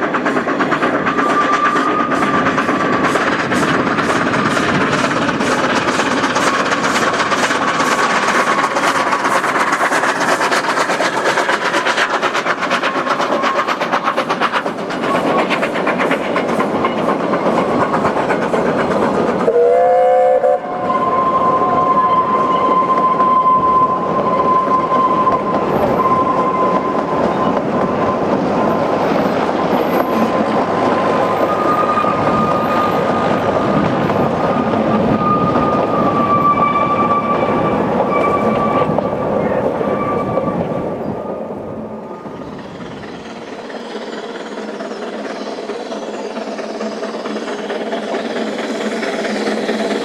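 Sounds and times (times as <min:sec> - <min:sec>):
train wheels clattering on rails: 0:00.0 - 0:50.0
wheel flanges squealing: 0:00.4 - 0:15.7, 0:20.5 - 0:41.4
steam locomotive whistle: 0:01.0 - 0:02.4, 0:19.4 - 0:28.3, 0:34.8 - 0:40.7.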